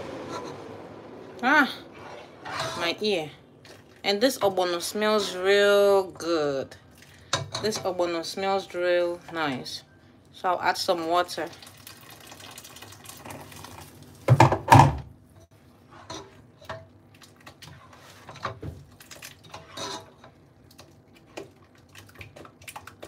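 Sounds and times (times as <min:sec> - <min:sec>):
metal spoon stirring and scraping pot: 0:00.0 - 0:00.7, 0:01.9 - 0:05.6, 0:15.8 - 0:18.6, 0:19.4 - 0:20.4
water pouring into saucepan: 0:11.2 - 0:14.4.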